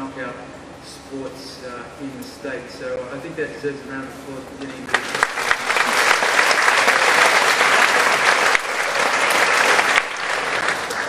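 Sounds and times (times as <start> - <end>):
audience applauding: 4.9 - 11.0.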